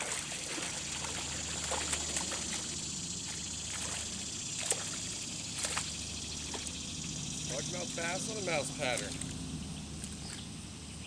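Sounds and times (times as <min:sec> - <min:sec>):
fish splashing at surface: 0:00.0 - 0:06.7
outdoor background hiss: 0:00.0 - 0:11.0.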